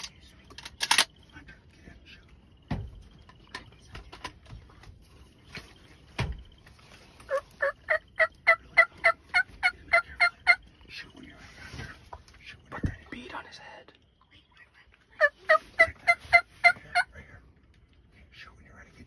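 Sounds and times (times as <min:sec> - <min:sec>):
wild turkey calling: 0:06.8 - 0:11.9, 0:14.5 - 0:17.5.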